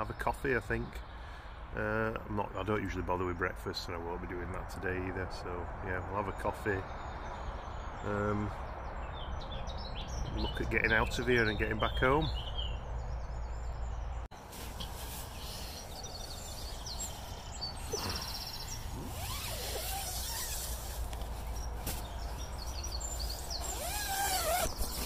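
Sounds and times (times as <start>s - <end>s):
birds chirping: 0.0s - 25.0s
distant motorway traffic rumble: 0.0s - 25.0s.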